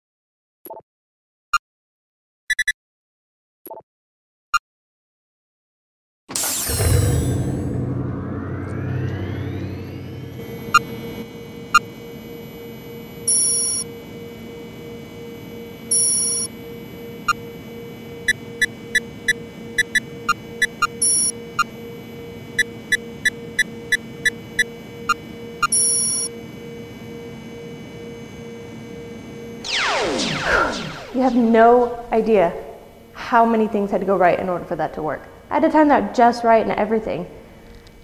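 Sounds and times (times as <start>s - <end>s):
electronic keypad beeps: 2.5s - 2.8s, 13.3s - 13.9s, 15.9s - 16.5s, 18.2s - 21.7s, 22.6s - 26.3s
pulsing electronic hum: 6.3s - 34.0s.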